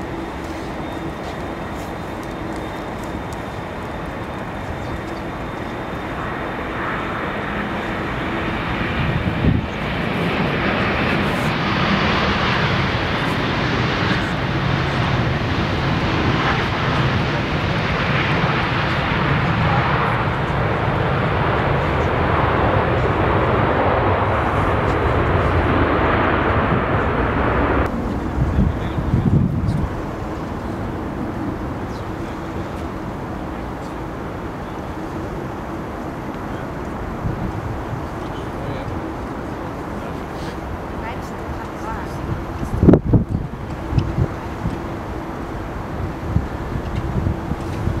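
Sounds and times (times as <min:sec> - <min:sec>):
jet airliner landing: 0:00.0 - 0:48.0.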